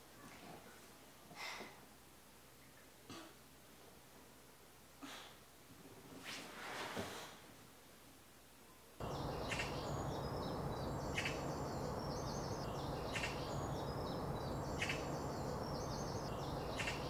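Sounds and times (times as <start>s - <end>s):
low background hum: 7.7s - 17.0s
high bird chirps: 9.0s - 17.0s.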